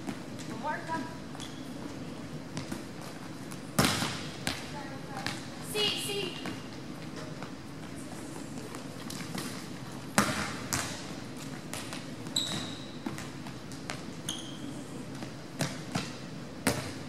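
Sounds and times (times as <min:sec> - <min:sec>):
sneaker squeaks: 0:01.2 - 0:04.1, 0:12.0 - 0:16.9
volleyball hitting hands and floor: 0:02.5 - 0:05.5, 0:09.0 - 0:14.0.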